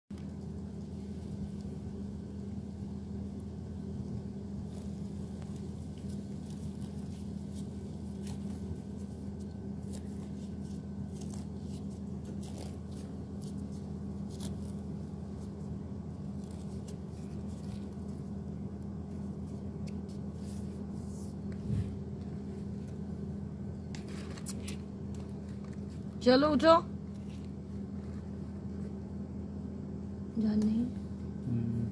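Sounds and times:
steady low hum: 0.1s - 31.9s.

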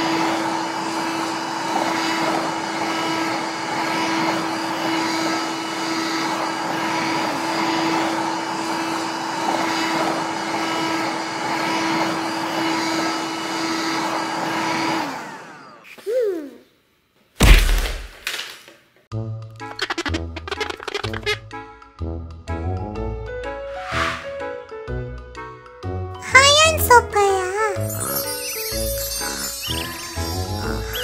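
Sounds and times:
toy vacuum cleaner whirring: 0.0s - 16.2s, 27.8s - 31.0s.

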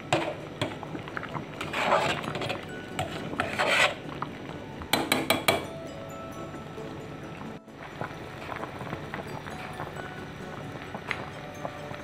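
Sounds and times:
tongs scraping metal pot: 1.5s - 4.3s.

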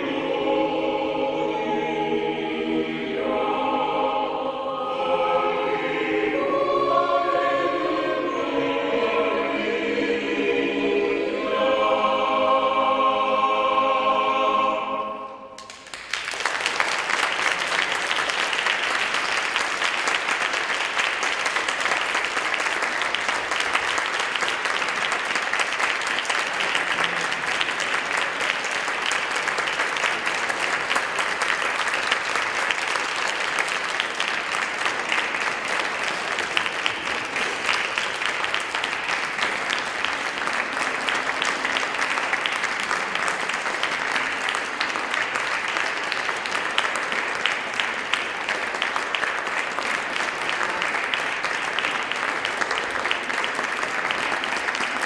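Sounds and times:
audience applauding: 15.6s - 55.0s.

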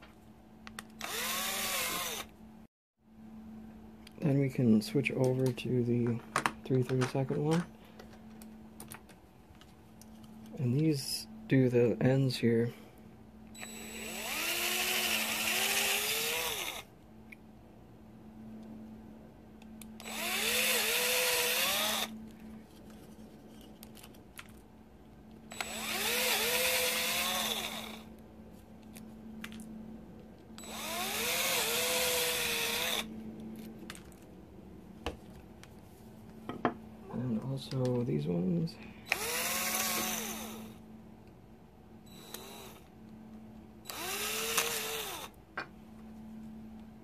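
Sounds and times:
cordless drill whining: 0.8s - 2.3s, 13.6s - 16.9s, 20.0s - 22.2s, 25.5s - 28.1s, 30.6s - 33.1s, 39.0s - 40.8s, 42.1s - 42.9s, 43.8s - 45.4s.

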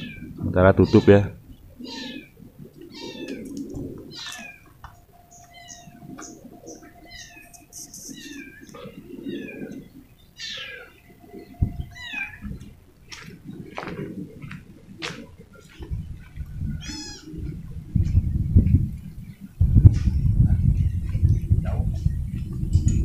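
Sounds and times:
high-pitched animal calls: 0.0s - 12.8s, 16.8s - 17.5s
faint steady tone: 4.8s - 14.8s.

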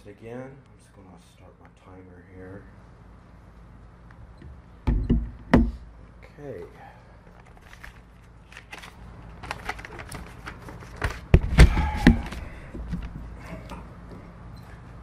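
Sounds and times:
thuds on wooden lectern: 4.9s - 5.8s
paper crinkling: 7.4s - 11.3s.

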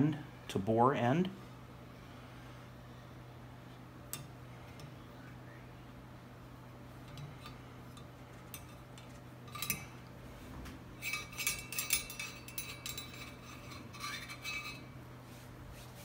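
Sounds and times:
metallic rattle: 6.9s - 10.1s, 10.9s - 15.0s
cleaning rod clinking in barrel: 7.1s - 10.0s, 11.0s - 14.9s.

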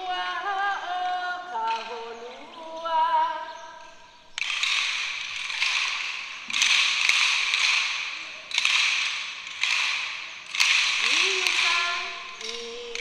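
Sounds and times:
rasping hula sticks: 4.4s - 13.0s.

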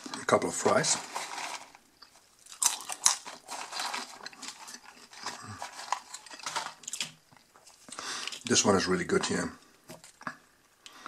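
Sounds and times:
person chewing crunchy fries: 1.2s - 8.5s.

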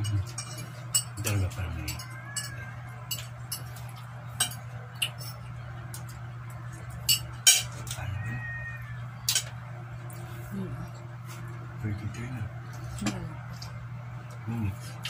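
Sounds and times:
cutlery and plates clinking: 0.0s - 6.2s, 6.9s - 8.1s, 9.2s - 9.6s.

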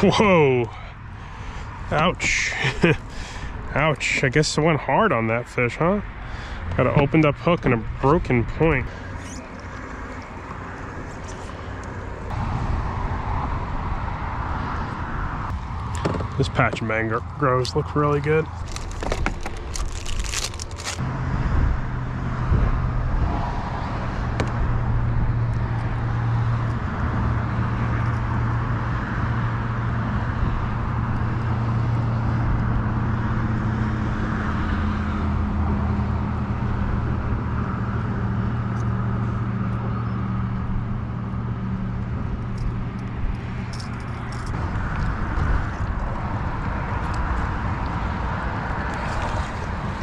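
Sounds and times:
water rushing along hull: 47.3s - 50.0s.

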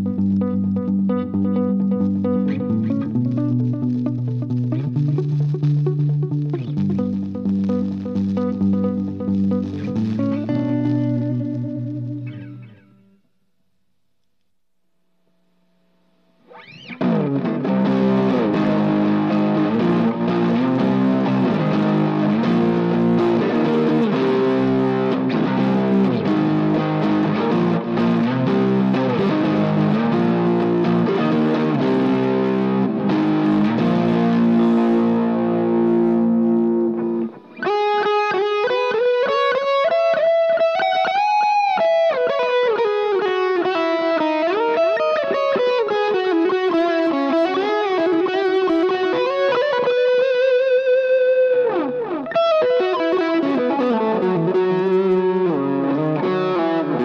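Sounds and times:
distorted electric guitar: 0.0s - 57.0s.

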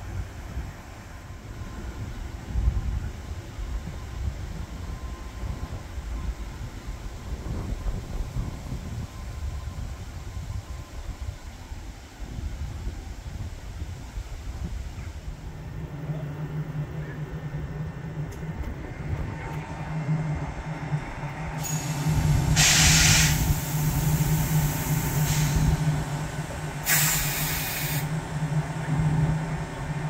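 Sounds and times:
locomotive low hum: 0.0s - 30.0s
compressed air hissing: 21.6s - 25.8s, 26.8s - 28.1s.

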